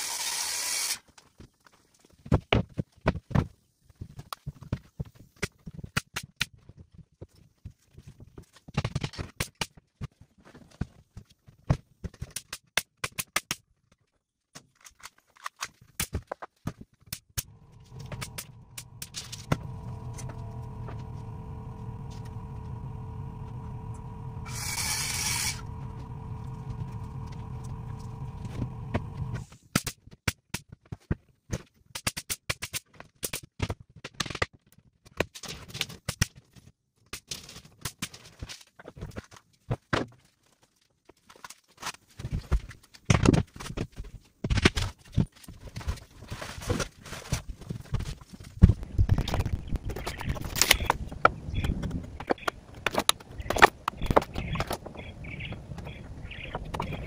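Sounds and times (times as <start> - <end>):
pneumatic nail gun firing: 0.0 - 1.0, 24.4 - 25.7
air compressor running: 17.4 - 29.5
hiss of air: 17.6 - 29.5.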